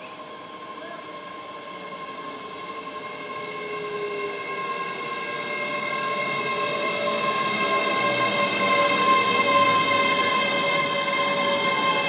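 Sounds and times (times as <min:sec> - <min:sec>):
electric train whine: 0:00.0 - 0:12.0
rail noise: 0:00.0 - 0:12.0.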